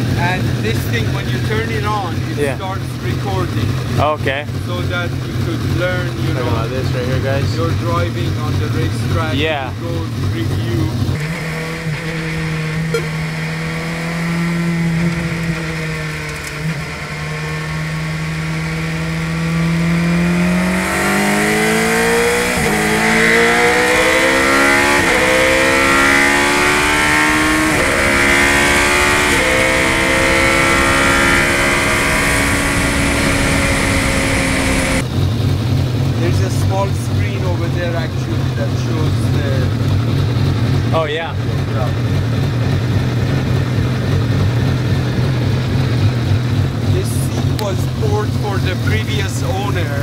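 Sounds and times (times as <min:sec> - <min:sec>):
race car engine accelerating: 0:00.0 - 0:50.0
rushing wind noise: 0:27.0 - 0:35.1.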